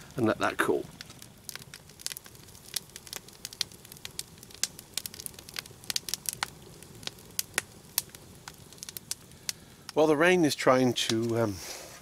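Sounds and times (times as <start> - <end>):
campfire crackling and popping: 0.0 - 12.0.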